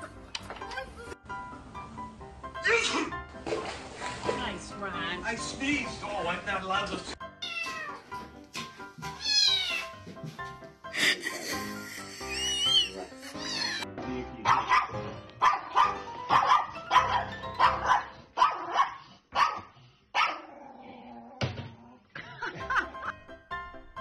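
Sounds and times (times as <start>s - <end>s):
light background music: 0.0s - 19.5s, 22.3s - 24.0s
small dog barking: 14.5s - 20.5s.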